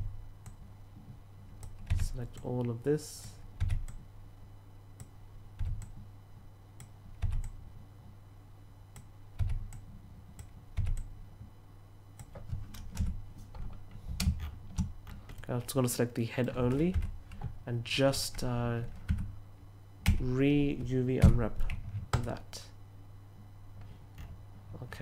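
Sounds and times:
low steady hum: 0.0s - 25.0s
keyboard and mouse clicking: 3.2s - 4.0s.

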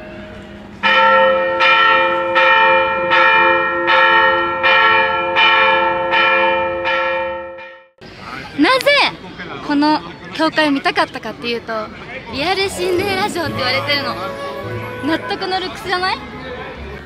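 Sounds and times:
church bell ringing: 0.0s - 7.9s.

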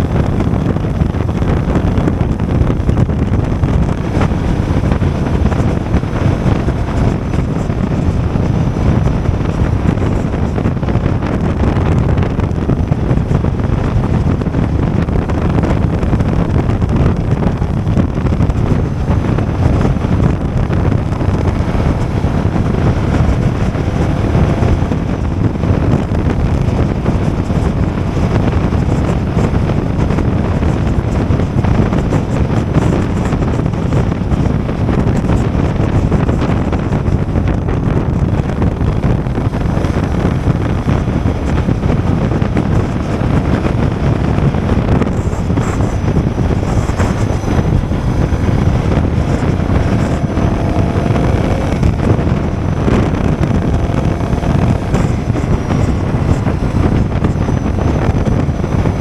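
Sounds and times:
motorcycle engine running: 0.0s - 59.0s
wind rush on microphone: 0.0s - 59.0s.

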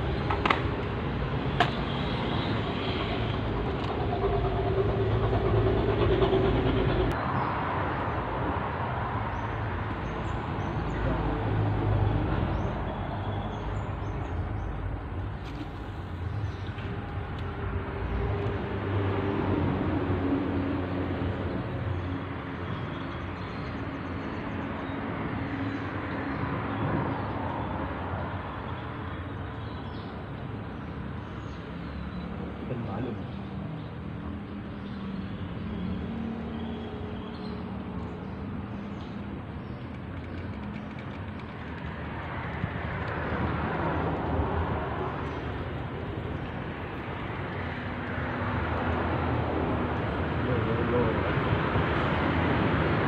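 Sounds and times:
traffic rumbling over bridge: 0.0s - 53.0s.

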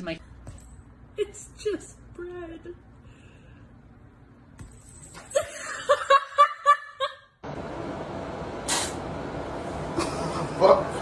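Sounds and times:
brief burst of noise: 8.6s - 9.0s.

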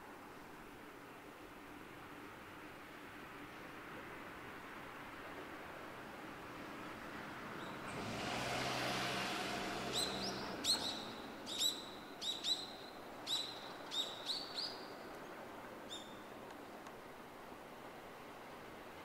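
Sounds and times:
bird chirping: 9.9s - 15.0s, 15.9s - 16.3s.

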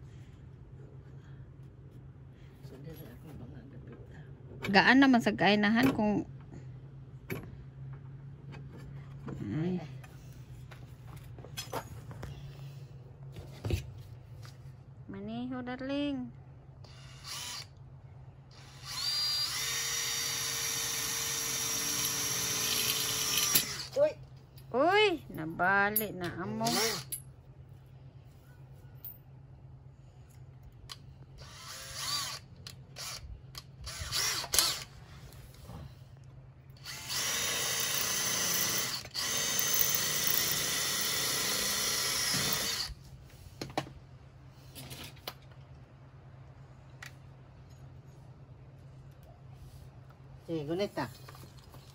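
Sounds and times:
cordless drill whining: 16.8s - 17.8s, 18.5s - 24.0s, 31.4s - 33.2s, 33.8s - 34.9s, 36.8s - 43.0s.

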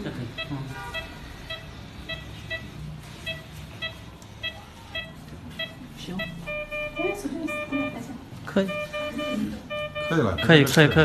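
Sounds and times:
short high medical beeps: 0.3s - 8.0s, 8.6s - 11.0s
longer lower steady tone: 3.8s - 8.0s.

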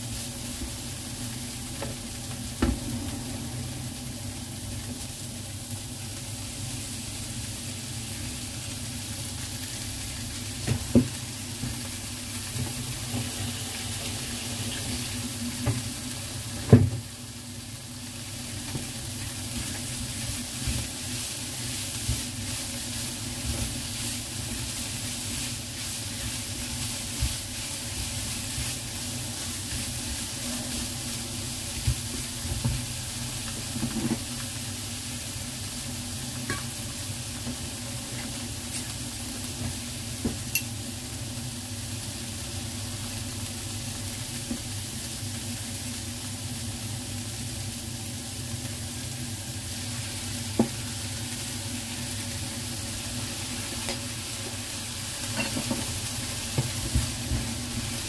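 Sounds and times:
food sizzling in a frying pan: 0.0s - 58.0s.

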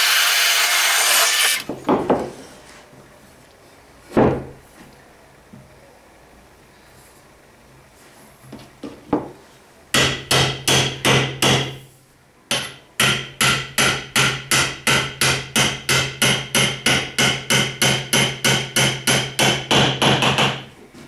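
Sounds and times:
hammer blows ringing on steel rod: 12.5s - 20.5s.

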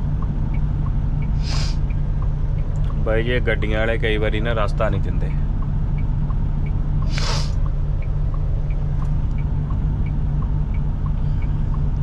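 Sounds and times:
diesel engine rumble: 0.0s - 12.0s
turn signal ticking: 0.0s - 12.0s
short hiss: 1.4s - 1.8s, 7.1s - 7.6s.

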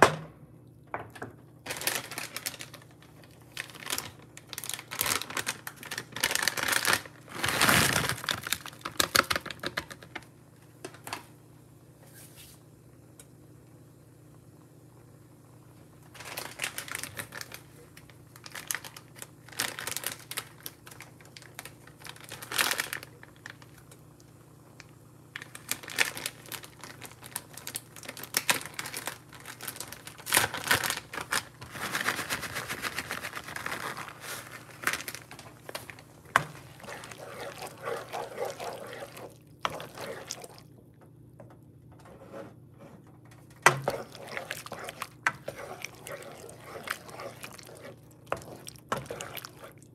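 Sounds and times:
crinkling and rustling: 1.6s - 10.3s, 16.1s - 23.8s, 25.4s - 40.7s, 43.1s - 49.9s.

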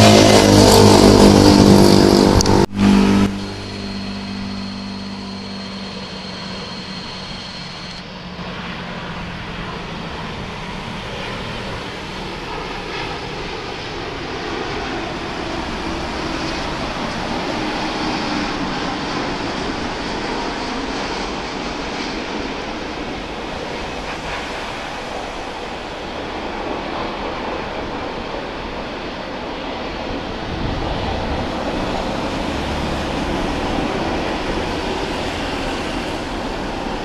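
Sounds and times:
motorcycle engine running: 0.0s - 8.0s
jet airliner engines rushing: 0.0s - 37.0s
road traffic: 0.0s - 37.0s.

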